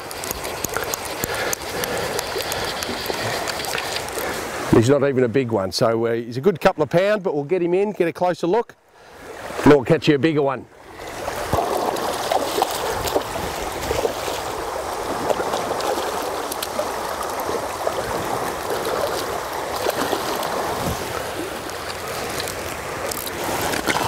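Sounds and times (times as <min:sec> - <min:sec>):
river water flowing: 0:00.0 - 0:06.2, 0:08.8 - 0:24.0
fish splashing at surface: 0:11.2 - 0:24.0.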